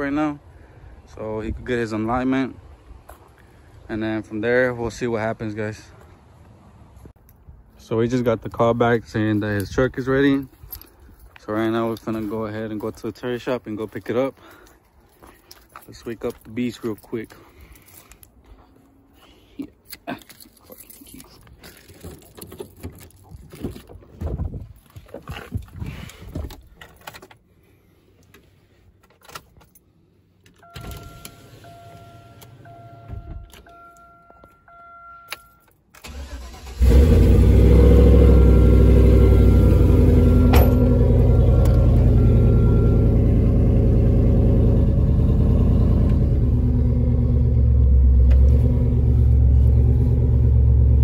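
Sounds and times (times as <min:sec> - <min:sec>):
dashboard chime beeping: 0:30.6 - 0:35.7, 0:38.6 - 0:43.2
engine cranking and idling: 0:36.0 - 0:51.0.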